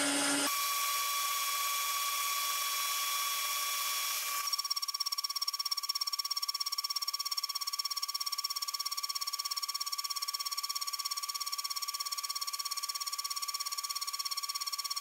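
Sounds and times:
endmill cutting whine pulsing: 0.0s - 0.5s.

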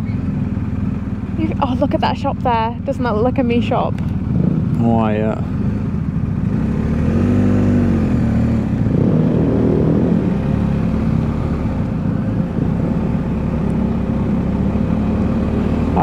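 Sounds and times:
motorcycle engine at low speed: 0.0s - 16.0s.

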